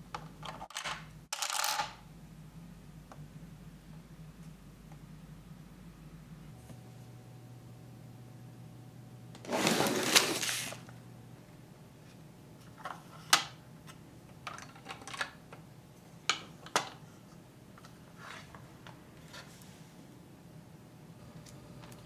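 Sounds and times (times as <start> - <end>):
plastic rustling: 9.4 - 10.9
plastic parts clicking and tapping: 14.4 - 15.6.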